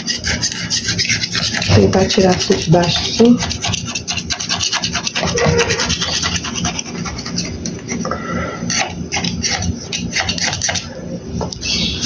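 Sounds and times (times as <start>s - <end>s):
knife scraping metal cake pan: 0.0s - 7.6s.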